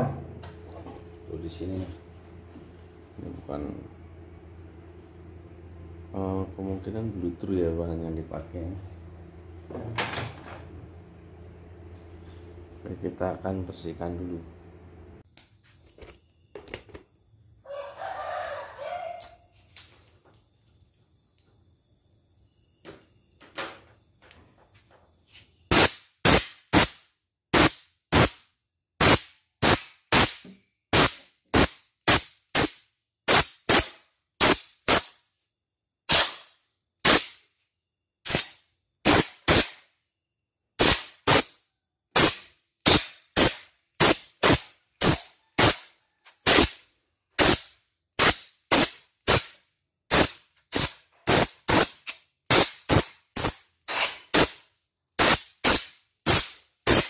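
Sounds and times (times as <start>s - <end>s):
compressed air blasts: 25.7s - 28.4s, 29.0s - 35.2s, 36.1s - 37.4s, 38.2s - 39.9s, 40.8s - 46.8s, 47.4s - 57.0s.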